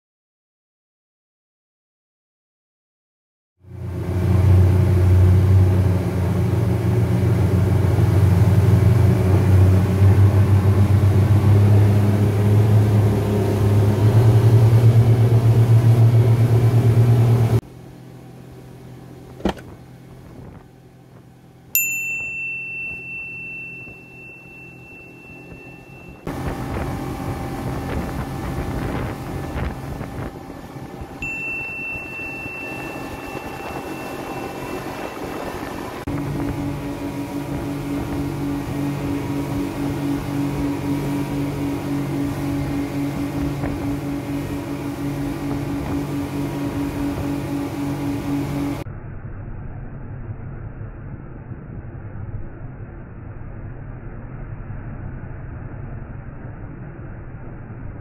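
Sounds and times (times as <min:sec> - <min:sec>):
outboard engine droning: 0:03.6 - 0:50.2
high ringing tone: 0:21.8 - 0:26.4, 0:30.6 - 0:36.1.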